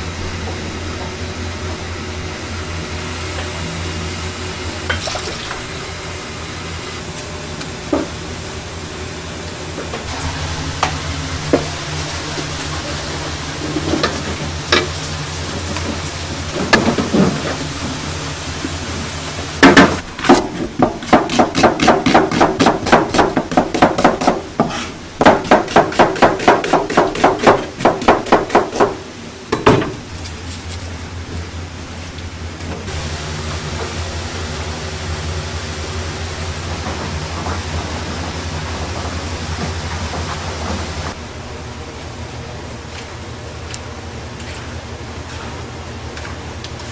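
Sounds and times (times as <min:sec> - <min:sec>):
low kitchen hum: 0:00.0 - 0:46.9
knife chopping on cutting board: 0:21.0 - 0:29.0.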